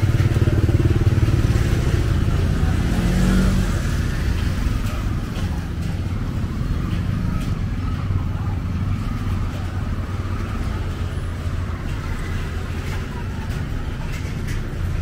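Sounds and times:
small motorbike engine running: 0.0s - 6.6s
motorbike traffic on wet street: 0.0s - 15.0s.

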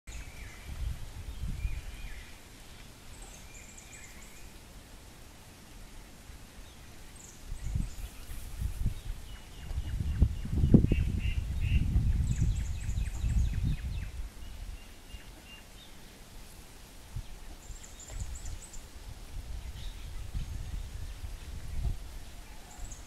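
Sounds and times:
wind buffeting microphone: 0.1s - 2.4s, 7.4s - 15.3s, 17.0s - 23.0s
faint bird chirps: 19.7s - 23.0s.

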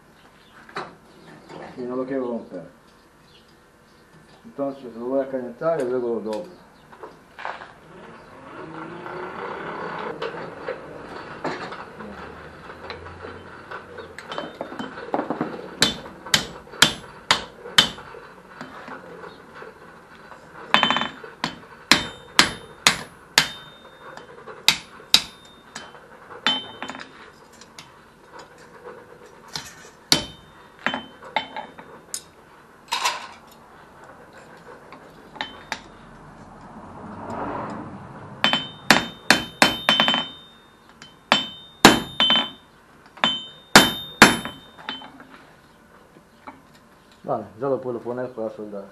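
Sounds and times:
hammer striking steel on anvil: 15.8s - 18.1s, 20.7s - 27.1s, 30.1s - 32.3s, 35.4s - 35.9s, 38.4s - 45.2s.

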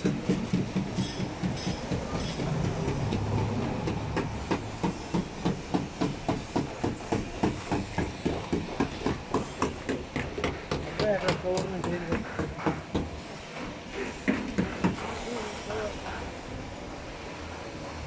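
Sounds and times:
rapid knocking: 0.0s - 13.2s.

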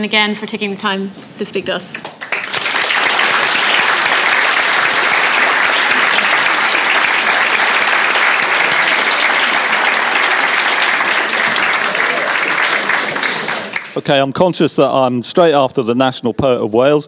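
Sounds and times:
audience applauding: 2.0s - 14.2s.

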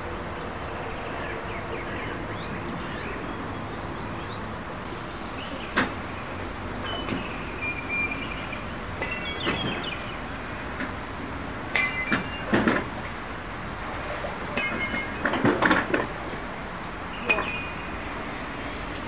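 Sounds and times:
sharp metallic clinks: 9.0s - 9.9s, 11.7s - 12.8s, 14.5s - 15.7s, 17.2s - 18.0s.

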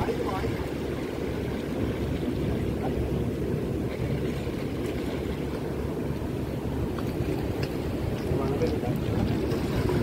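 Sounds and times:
sea waves washing against rocks: 0.0s - 10.0s
wind on microphone: 0.0s - 10.0s.

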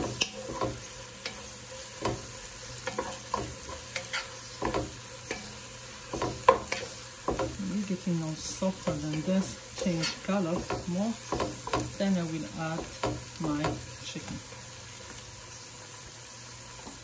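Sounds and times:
wooden spoon scraping a pot: 0.0s - 7.8s, 8.5s - 12.0s
onions sizzling: 0.0s - 17.0s.

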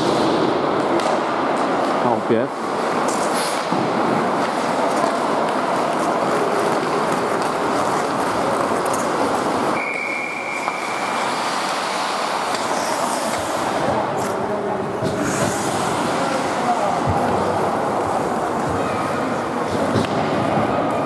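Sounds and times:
skate blades scraping ice: 2.7s - 20.8s
referee's whistle blast: 9.8s - 10.9s.

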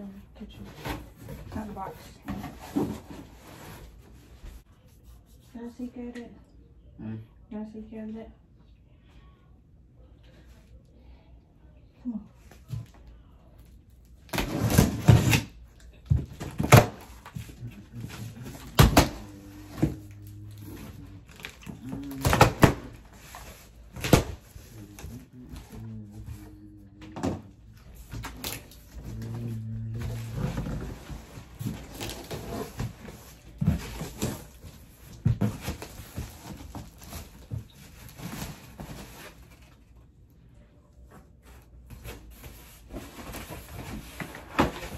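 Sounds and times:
cardboard scraping and knocking: 0.6s - 4.2s
plastic wrap rustling: 27.9s - 39.8s.

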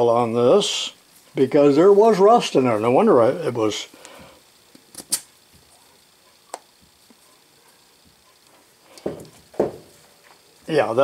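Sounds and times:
dull knocks: 9.0s - 9.9s.

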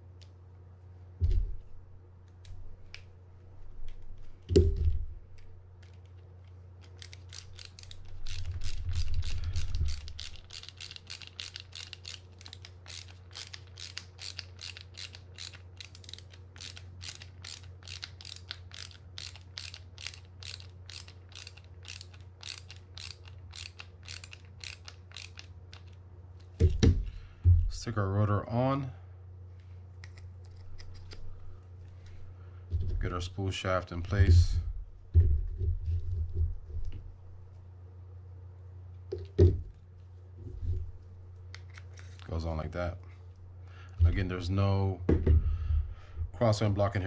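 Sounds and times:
ratcheting screwdriver clicking: 6.8s - 26.0s.

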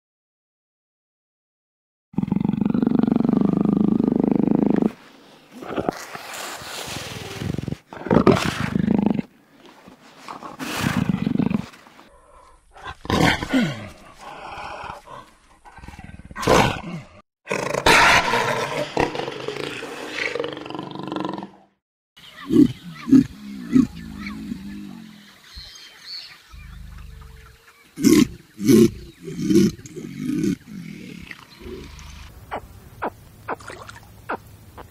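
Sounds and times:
jaguar roaring: 26.5s - 32.3s.

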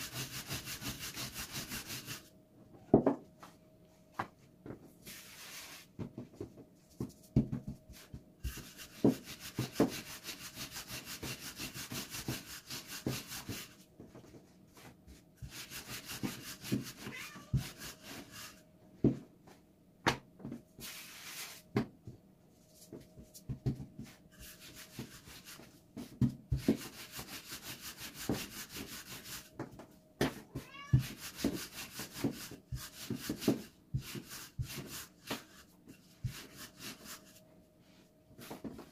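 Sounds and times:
hands rubbing dough: 5.0s - 6.0s, 6.6s - 18.6s, 20.8s - 21.7s, 22.6s - 29.8s, 31.0s - 38.9s.

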